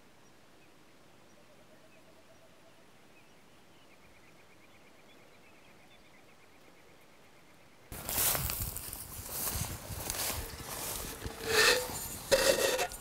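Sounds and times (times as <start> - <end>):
faint bird singing: 0.0 - 8.0.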